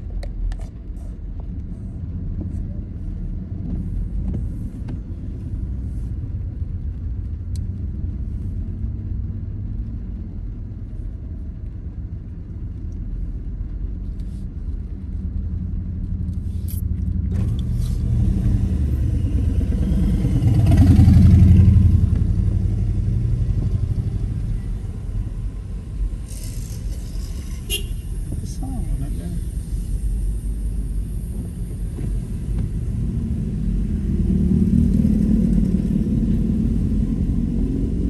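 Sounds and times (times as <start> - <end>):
car engine rumble: 0.0 - 38.0
road noise on wet road: 0.0 - 38.0
vehicle passing close by: 17.3 - 25.4.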